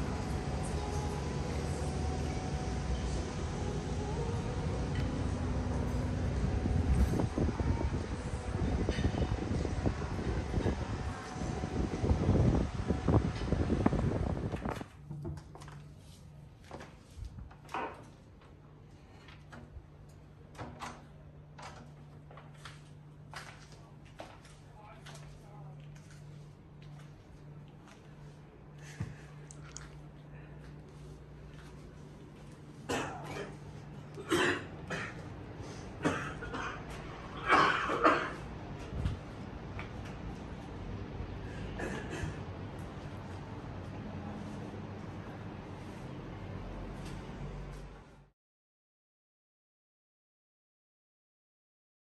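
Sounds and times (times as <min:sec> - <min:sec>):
steady low hum: 0:00.0 - 0:48.3
footsteps walking into room: 0:05.0 - 0:20.7, 0:21.6 - 0:36.0, 0:36.8 - 0:37.4, 0:38.4 - 0:41.4, 0:42.4 - 0:48.3
person coughing: 0:32.9 - 0:33.6, 0:34.2 - 0:35.2, 0:36.0 - 0:38.4, 0:41.7 - 0:42.4.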